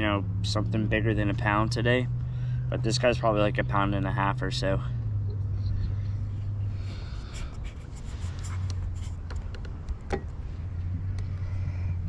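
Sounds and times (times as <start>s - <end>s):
steady low hum: 0.0s - 12.0s
handling clicks and rubbing: 7.2s - 10.4s.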